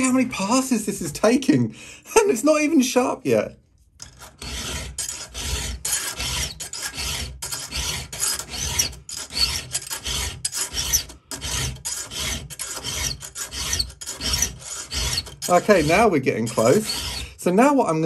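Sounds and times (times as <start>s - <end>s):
file rasping on saw chain: 4.0s - 17.5s.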